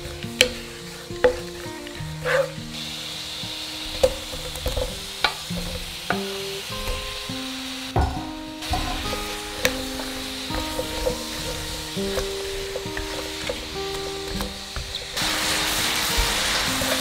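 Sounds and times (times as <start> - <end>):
greens frying in oil: 0.0 - 17.0
wooden spatula knocks: 8.0 - 15.1.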